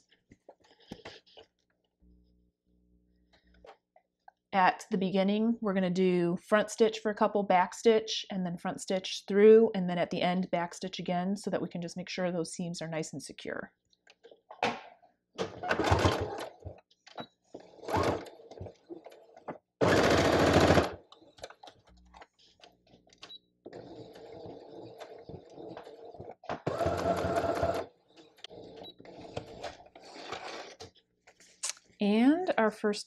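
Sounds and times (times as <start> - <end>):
sewing machine stitching: 15.7 - 16.6, 17.6 - 18.6, 19.8 - 21.0, 26.6 - 30.7.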